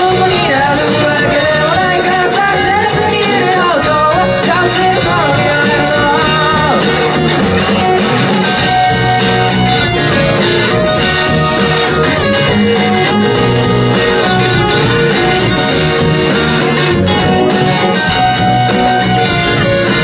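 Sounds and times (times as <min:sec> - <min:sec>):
person singing: 0:00.0 - 0:07.8
drums: 0:00.0 - 0:20.0
electric guitars: 0:00.0 - 0:20.0.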